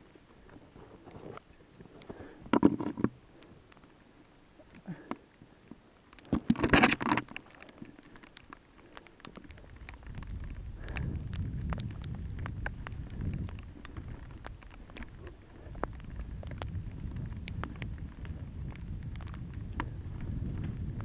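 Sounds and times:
bike clicks and clatter: 6.4s - 21.0s
wind rumble on microphone: 9.4s - 21.0s.

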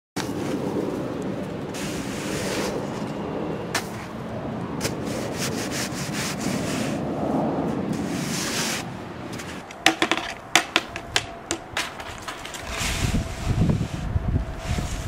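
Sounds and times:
scraping snow: 1.8s - 3.1s, 4.8s - 7.0s, 7.9s - 9.6s, 11.8s - 15.0s
sharp knocks and clacks: 9.7s - 12.5s.

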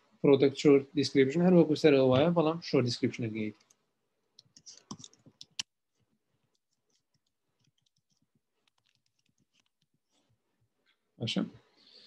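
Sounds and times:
computer keyboard typing: 4.4s - 5.7s, 6.5s - 9.9s.

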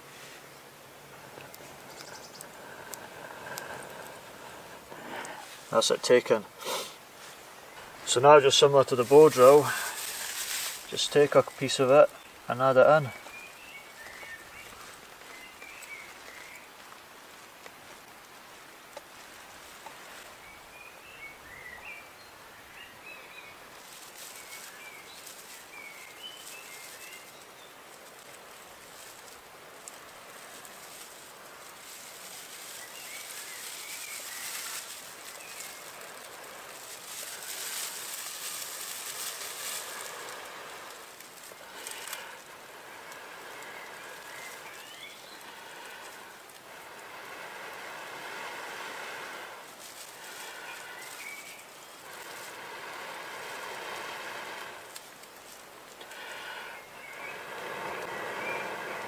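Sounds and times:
small birds chirping: 0.0s - 59.0s
breath puffs blowing on tinder: 1.2s - 12.0s, 23.1s - 59.0s.

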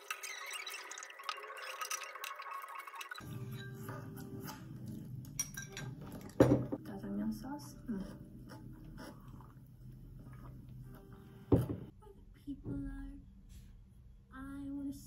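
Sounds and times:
low room hum: 4.5s - 15.0s
mug knocking on table: 6.4s - 6.8s, 11.5s - 11.9s.

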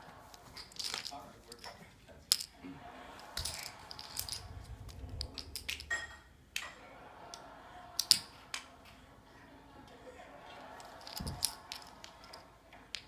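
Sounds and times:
plastic poker chips clattering: 0.3s - 1.7s, 3.4s - 5.9s, 8.0s - 8.2s, 10.8s - 13.0s.

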